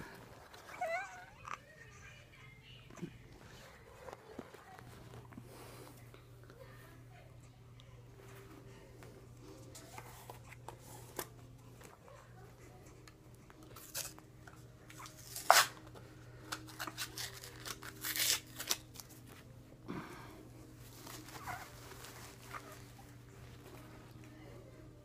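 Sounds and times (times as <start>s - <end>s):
faint steady hum: 0.0s - 25.0s
packet rustling and tearing: 13.7s - 14.2s, 14.9s - 19.3s.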